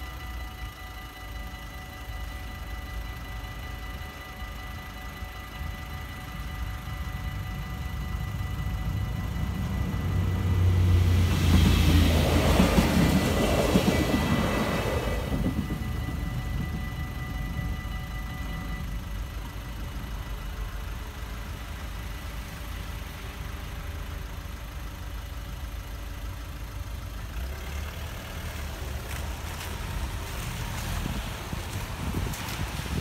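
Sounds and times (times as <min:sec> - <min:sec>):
diesel railcar departing: 0:00.0 - 0:33.0
idling cars rumbling: 0:00.0 - 0:33.0
cars clattering over rails: 0:09.2 - 0:18.4.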